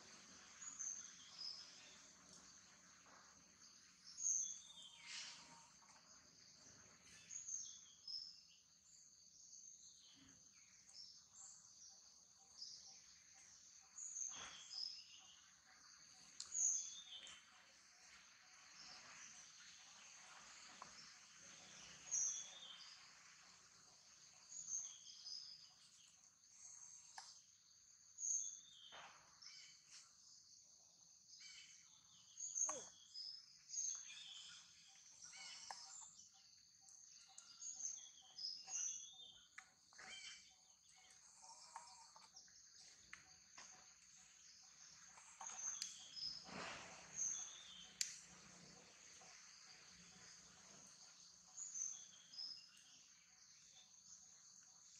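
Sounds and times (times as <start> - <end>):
insects chirring: 31.4 - 54.9.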